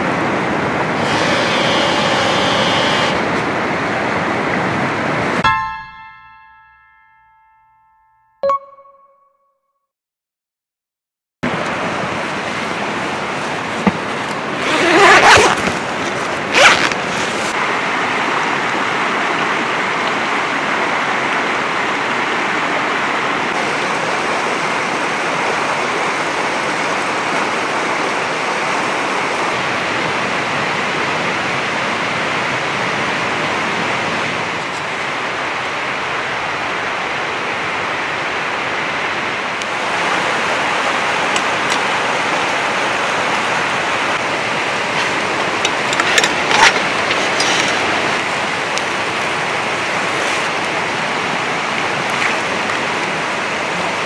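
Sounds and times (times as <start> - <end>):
tent zipper pulled open: 1.0 - 3.3, 14.0 - 17.6, 44.9 - 48.2.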